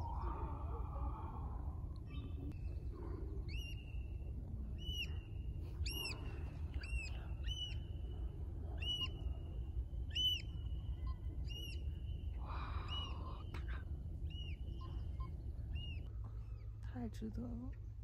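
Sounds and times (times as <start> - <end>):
low steady rumble: 0.0 - 18.0
bird whistled calls: 8.8 - 9.2, 10.1 - 13.4.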